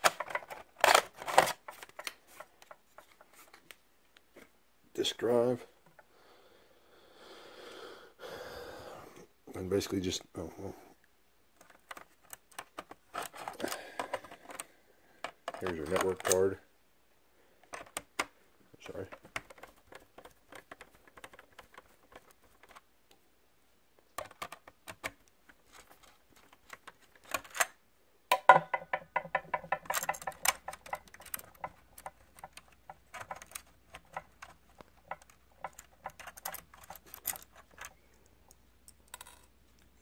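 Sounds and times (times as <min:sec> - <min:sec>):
screwdriver clicking on plastic: 0:28.5 - 0:38.0.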